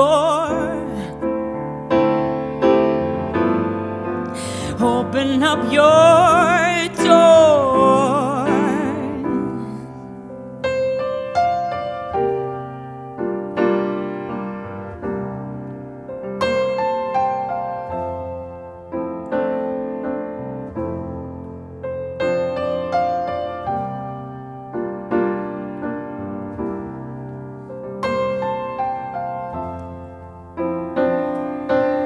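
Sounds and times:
slow gentle piano: 0.0s - 32.0s.

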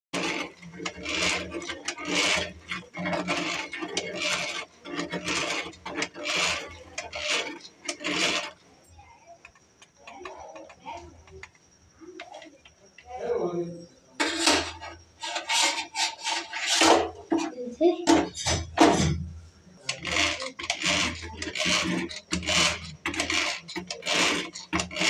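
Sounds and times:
beaters whisking liquid: 0.1s - 8.8s, 14.2s - 19.1s, 19.8s - 25.0s.

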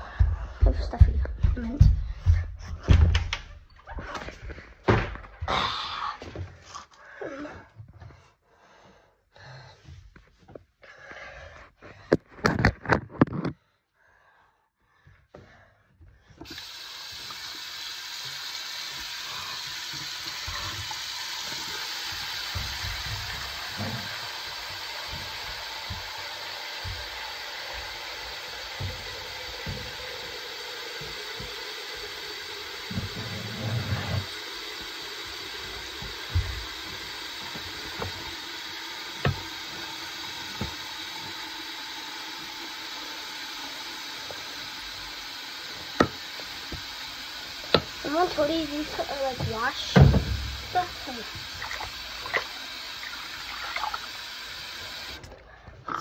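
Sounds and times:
tap running into a sink: 16.4s - 55.3s.

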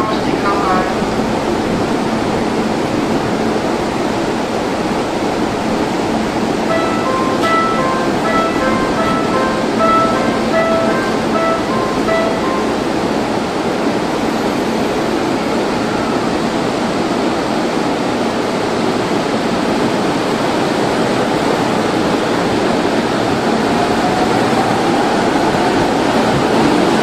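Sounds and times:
electric train rushing noise: 0.0s - 27.0s
train whine rising in pitch: 0.6s - 17.4s.

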